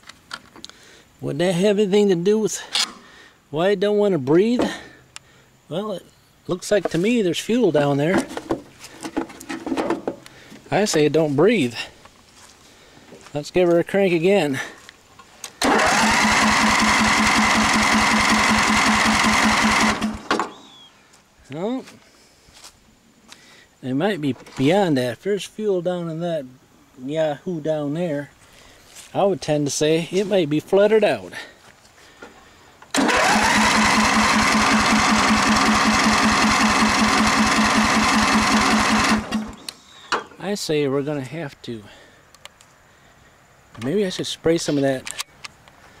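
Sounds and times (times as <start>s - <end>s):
starter cranking mower engine: 15.6s - 20.6s, 32.9s - 39.7s.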